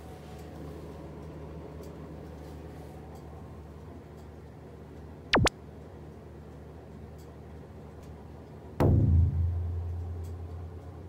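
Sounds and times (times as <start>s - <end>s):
deep drum boom: 8.8s - 9.9s.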